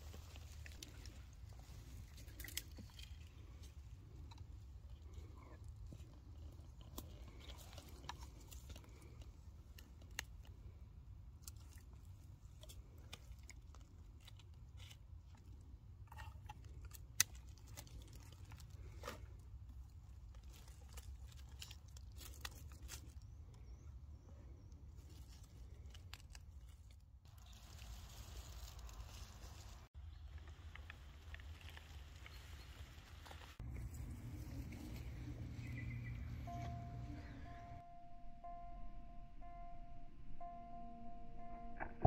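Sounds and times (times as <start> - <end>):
crunching of dry pine needles: 0.0 - 10.8, 11.4 - 23.8, 24.5 - 36.5
low steady rumble: 33.6 - 42.0.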